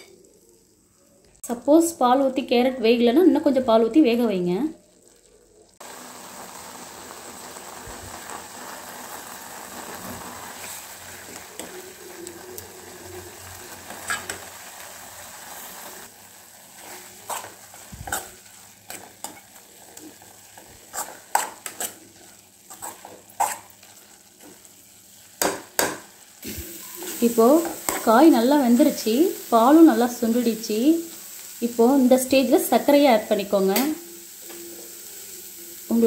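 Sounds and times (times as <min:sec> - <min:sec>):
food sizzling in a pan: 0:00.0 - 0:36.0
spoon stirring and scraping pan: 0:08.0 - 0:29.7.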